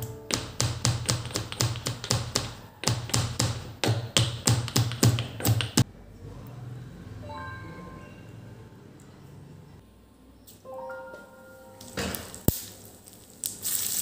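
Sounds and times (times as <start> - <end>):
stone pestle pounding in mortar: 0.3 - 5.8.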